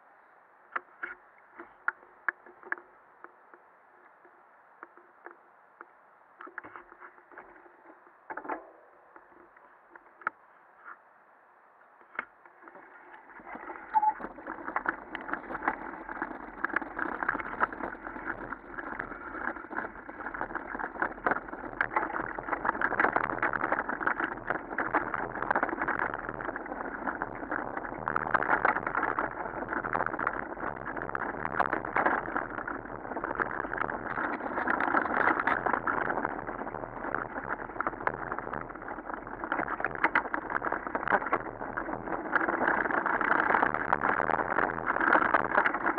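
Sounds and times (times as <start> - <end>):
gravel crunching under tyres: 12.6 - 45.9
bike rattling over bumps: 12.8 - 45.9.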